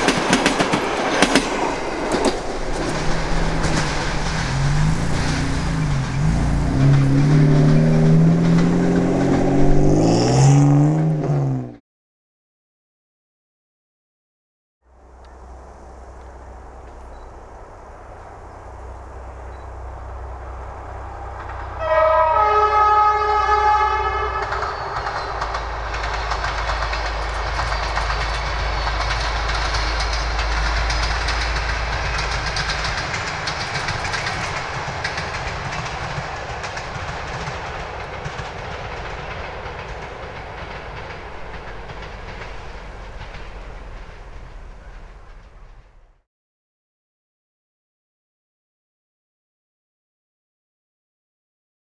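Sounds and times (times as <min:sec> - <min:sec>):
train wheels clattering on rails: 0:00.0 - 0:10.2, 0:23.8 - 0:46.2
locomotive engine rumbling: 0:00.0 - 0:11.7, 0:14.9 - 0:46.2
locomotive horn blast: 0:21.7 - 0:25.5.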